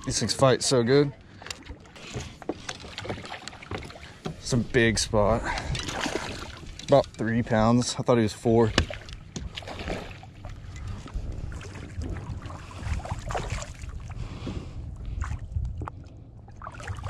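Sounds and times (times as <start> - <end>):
low wind rumble: 3.7 - 17.0
fish splashing at the surface: 5.7 - 6.7, 8.7 - 10.8, 11.6 - 14.2.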